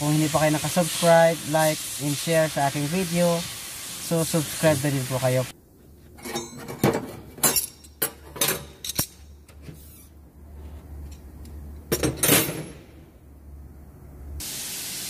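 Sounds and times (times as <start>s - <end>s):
hiss: 0.0s - 5.5s, 14.4s - 15.0s
wrenches clinking on metal: 6.2s - 9.4s.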